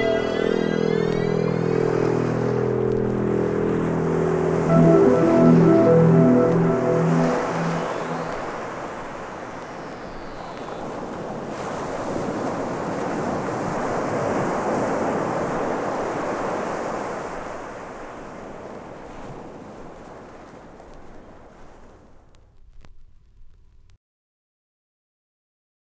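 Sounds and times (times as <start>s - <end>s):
surf-like noise: 0.0s - 19.4s.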